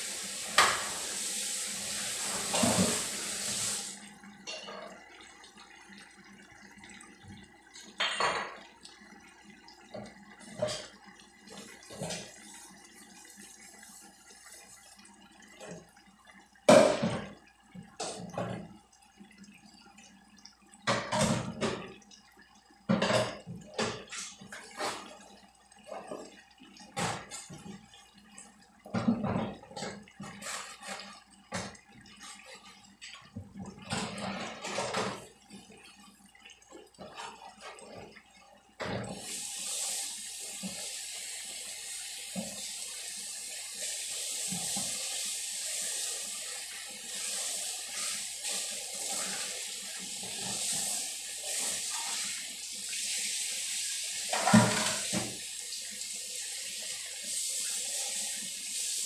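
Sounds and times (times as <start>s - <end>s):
faucet water running into sink: 0.0s - 59.0s
dishes clattering in sink: 0.5s - 1.0s, 2.2s - 3.1s, 4.4s - 5.0s, 8.0s - 8.7s, 9.9s - 11.0s, 16.7s - 17.4s, 20.8s - 22.0s, 22.9s - 25.1s, 28.9s - 35.4s, 54.2s - 55.4s.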